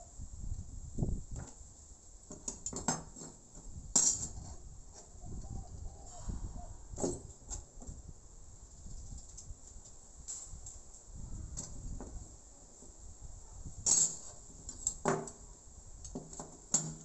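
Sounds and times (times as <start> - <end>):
metal strips clinking on wood: 13.8 - 15.4.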